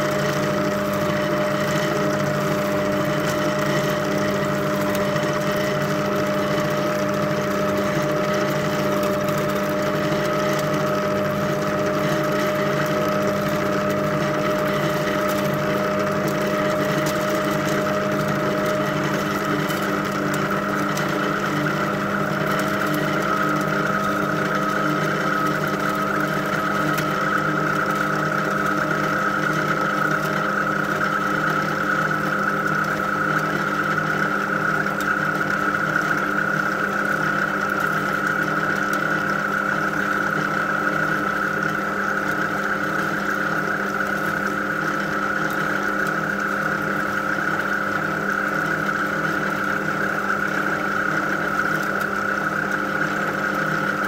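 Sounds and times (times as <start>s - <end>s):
line-spooling machine humming: 0.0s - 41.0s.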